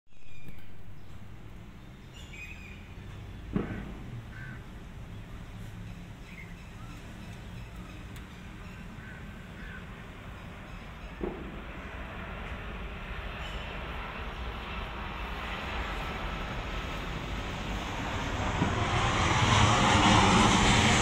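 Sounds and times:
birds calling: 0:06.2 - 0:11.2
steady low rumble: 0:11.4 - 0:21.0.

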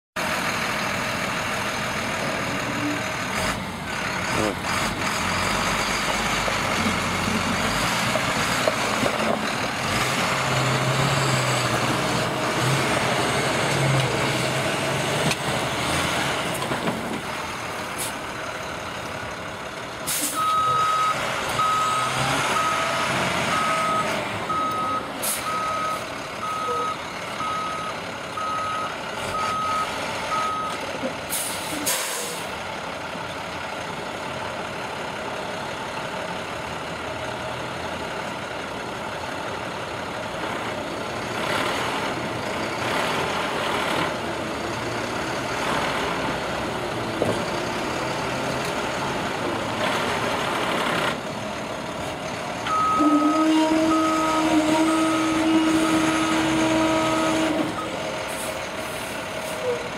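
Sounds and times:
backup alarm beeping: 0:23.5 - 0:30.7.

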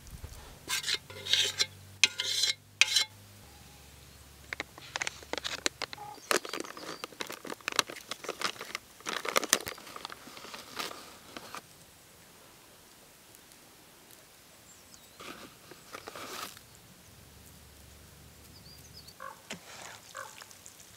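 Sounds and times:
plastic packet crinkling: 0:04.6 - 0:11.6.

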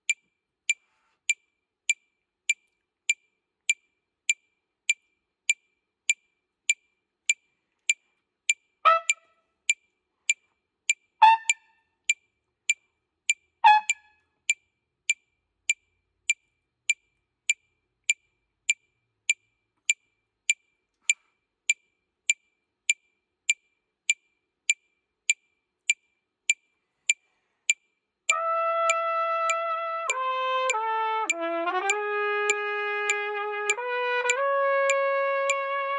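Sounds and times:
metronome ticking: 0:00.0 - 0:35.9
short trumpet notes: 0:08.8 - 0:09.4, 0:11.2 - 0:11.6, 0:13.6 - 0:14.1, 0:28.3 - 0:35.9.

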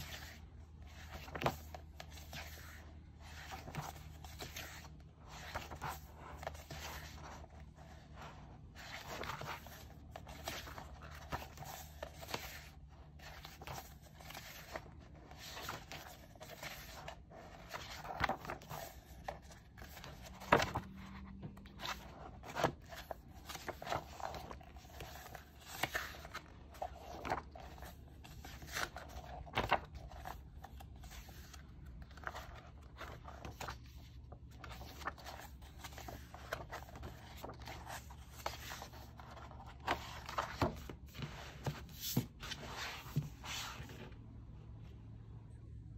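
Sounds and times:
paper rustling and sliding: 0:00.0 - 0:44.2
pages snapping as they flip: 0:28.5 - 0:31.5.

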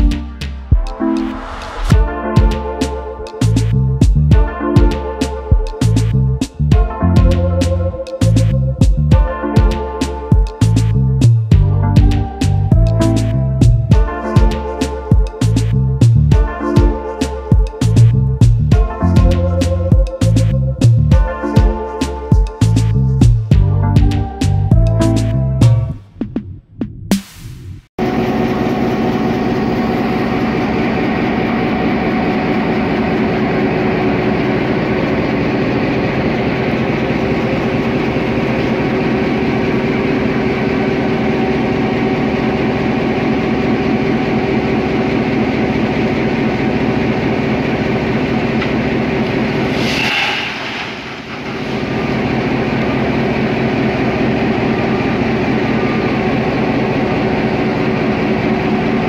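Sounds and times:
diesel locomotive engine running: 0:28.0 - 0:59.0
short hiss: 0:49.6 - 0:51.8.

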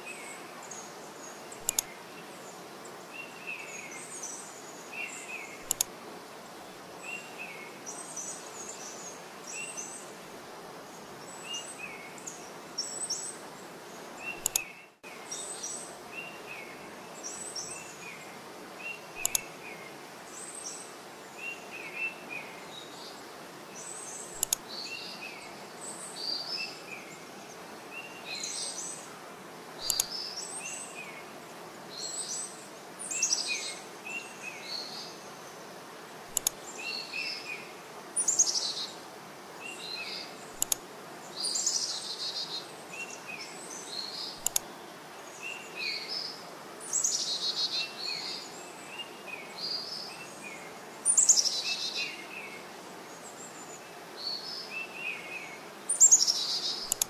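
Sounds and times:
outdoor background hiss: 0:00.0 - 0:57.0
sharp clicks: 0:01.6 - 0:01.9, 0:05.6 - 0:05.9, 0:14.4 - 0:14.7, 0:19.2 - 0:19.4, 0:24.4 - 0:24.6, 0:29.8 - 0:30.1, 0:36.3 - 0:36.6, 0:40.6 - 0:40.8, 0:44.4 - 0:44.7
birds chirping: 0:10.9 - 0:18.2, 0:18.8 - 0:23.2, 0:23.8 - 0:29.1, 0:29.8 - 0:35.7.

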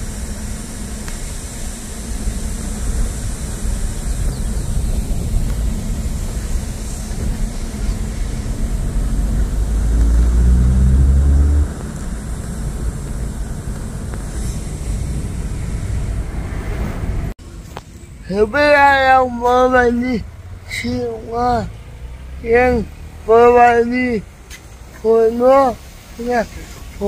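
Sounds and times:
car engine from inside cabin: 0:00.0 - 0:27.0.

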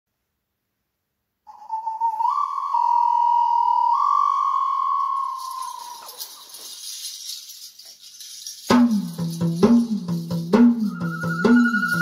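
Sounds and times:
whistle-like melody: 0:01.5 - 0:09.1, 0:10.6 - 0:12.0
light shaker percussion: 0:04.9 - 0:12.0.

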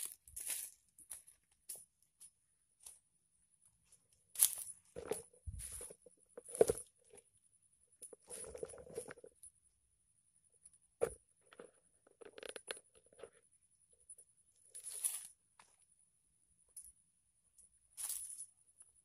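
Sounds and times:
rustles and crunches: 0:00.0 - 0:03.0, 0:03.8 - 0:07.3, 0:08.0 - 0:09.5, 0:14.6 - 0:15.9, 0:18.0 - 0:18.6.

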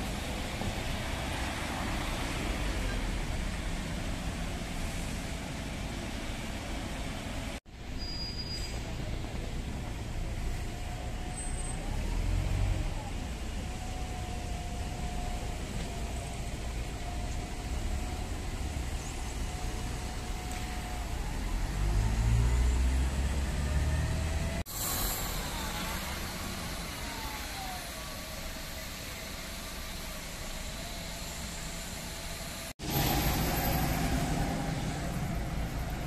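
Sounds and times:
bus engine with whine: 0:00.0 - 0:36.0
road traffic noise: 0:00.0 - 0:36.0
car passing: 0:32.8 - 0:36.0.

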